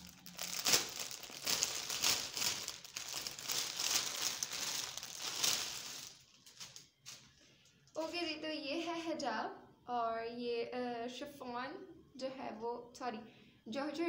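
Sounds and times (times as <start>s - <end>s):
plastic bag crinkling: 0.0s - 7.3s.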